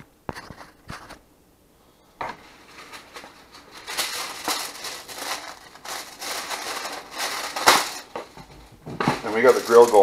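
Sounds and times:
aluminium foil crinkling: 2.4s - 10.0s.

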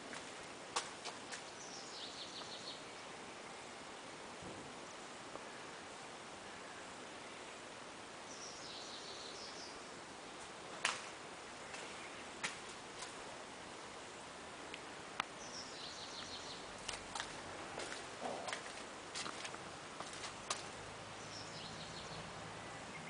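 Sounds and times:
faint background noise: 0.0s - 23.0s
small bird chirping: 21.2s - 23.0s.

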